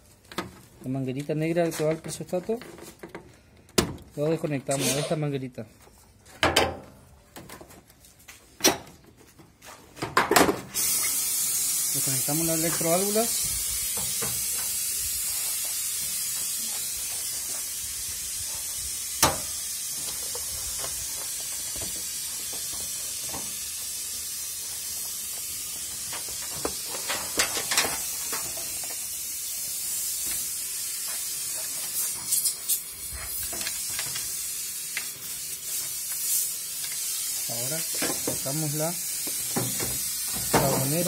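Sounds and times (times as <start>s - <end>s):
steady high hiss: 10.6s - 41.0s.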